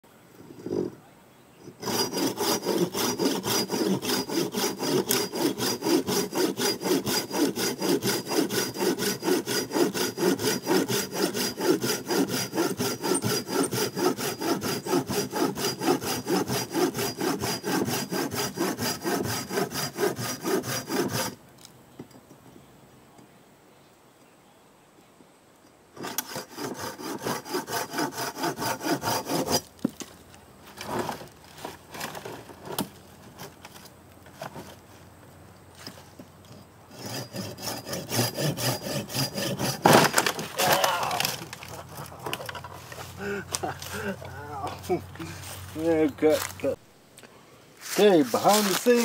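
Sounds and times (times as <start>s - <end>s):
hand saw cutting branch: 1.7s - 21.4s, 26.0s - 30.0s, 35.8s - 46.8s, 47.8s - 49.0s.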